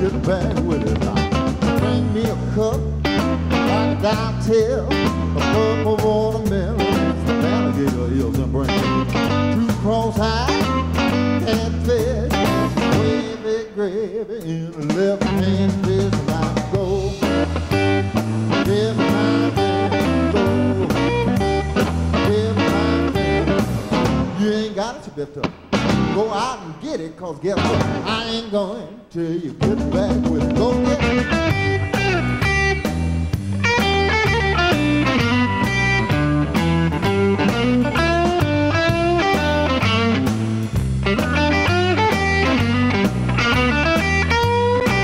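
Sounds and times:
walking bass line: 0.0s - 13.3s, 14.8s - 24.7s, 25.4s - 26.4s, 27.5s - 28.4s, 29.5s - 45.0s
drum kit: 0.0s - 13.8s, 14.4s - 28.5s, 29.4s - 45.0s
man singing: 0.0s - 23.6s, 24.2s - 32.4s
electric guitar: 0.0s - 26.6s, 27.4s - 45.0s.

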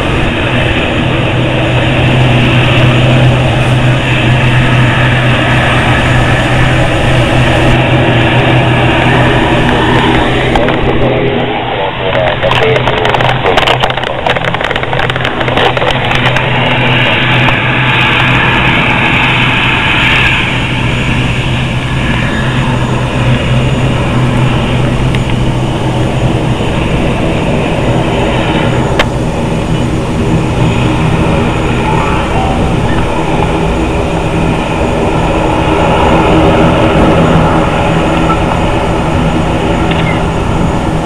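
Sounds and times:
turboprop engines droning: 0.0s - 41.0s
wind noise on microphone: 0.0s - 41.0s.

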